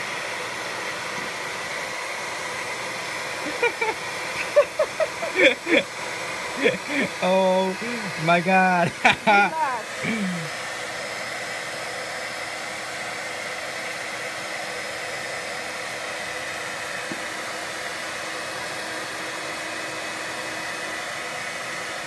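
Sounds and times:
air rushing from blower: 0.0 - 22.0
motor hum: 3.0 - 10.8.

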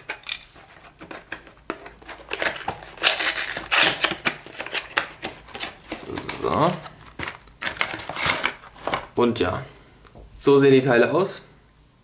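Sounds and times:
cardboard and paper rustling: 0.0 - 9.2.

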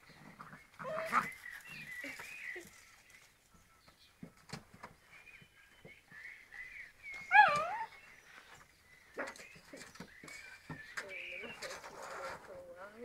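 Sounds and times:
puppies whining and yipping: 0.4 - 2.7, 7.1 - 10.4
puppy yelping: 7.3 - 7.9.

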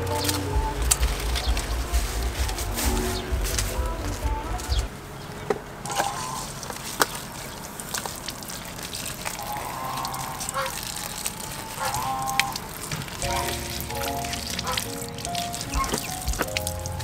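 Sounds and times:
music: 0.0 - 4.9, 13.2 - 17.0
water splashing on leaves: 5.9 - 17.0
water running from tap: 6.5 - 17.0.

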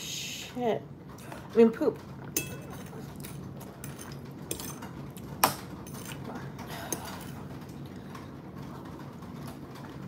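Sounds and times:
fork clinking on plate: 2.4 - 6.2.

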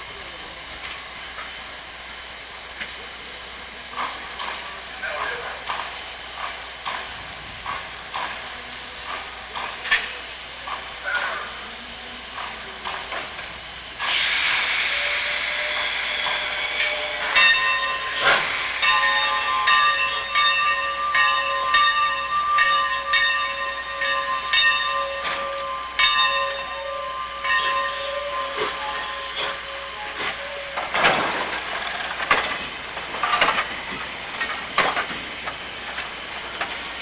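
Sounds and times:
steam hissing: 0.0 - 37.0
steam engine beats: 12.3 - 37.0.

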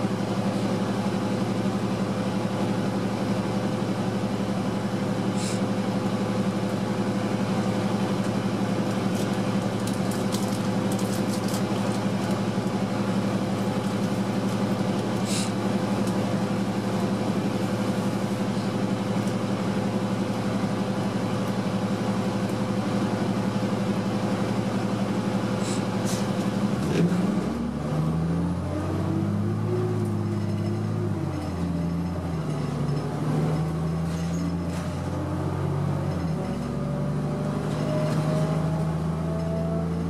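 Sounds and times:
bus diesel engine: 0.0 - 40.0
short hisses: 5.4 - 5.6, 15.2 - 15.6, 25.6 - 26.3.

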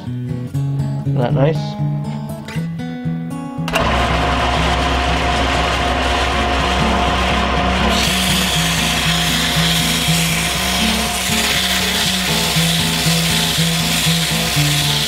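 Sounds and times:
background music: 0.0 - 15.0
lathe motor hum: 3.7 - 15.0
sandpaper hissing on turning wood: 7.9 - 15.0.

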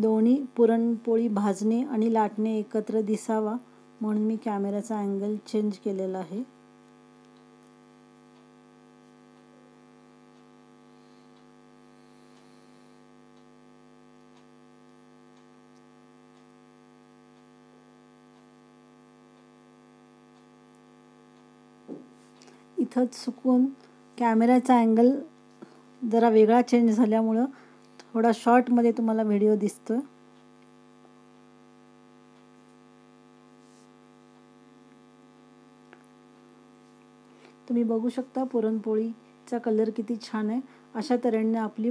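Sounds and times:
electrical mains hum: 0.0 - 41.9
faint ticks: 6.8 - 21.6.

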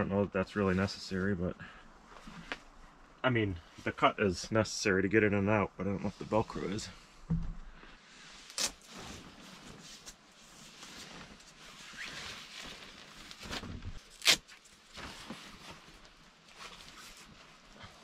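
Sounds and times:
soft thump: 7.3 - 7.7
tent fabric rustling: 8.0 - 18.0.

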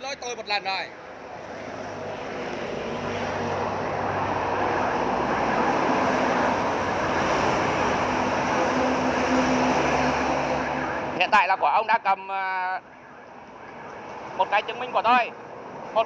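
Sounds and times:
loud engine drone: 2.8 - 11.2.

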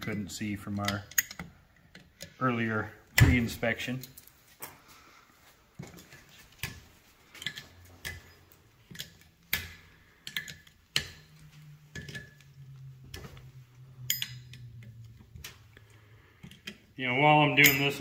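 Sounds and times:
low steady hum: 0.0 - 18.0
pliers clicking on metal: 7.4 - 12.5.

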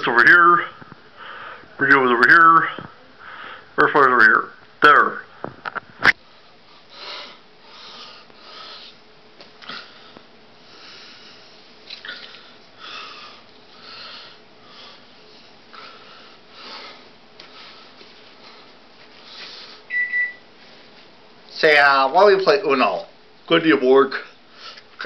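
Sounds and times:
person breathing close to microphone: 1.1 - 1.8, 2.7 - 3.8, 6.7 - 9.0, 9.6 - 19.9.

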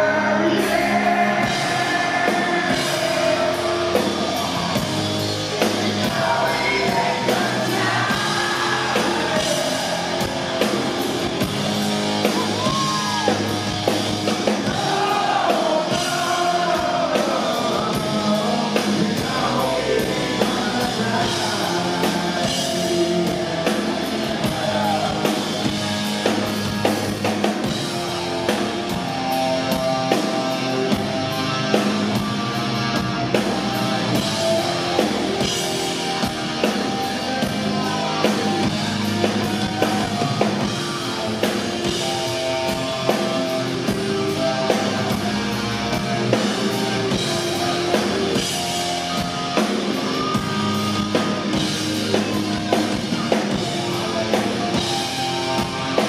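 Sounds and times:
man singing lead vocal: 0.0 - 11.0, 14.5 - 25.9, 34.1 - 51.8, 52.7 - 56.0
live rock band playing: 0.0 - 56.0.

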